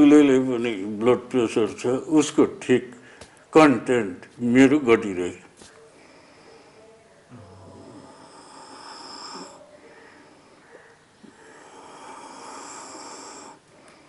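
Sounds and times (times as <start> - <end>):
breath blowing out smoke: 11.2 - 14.0.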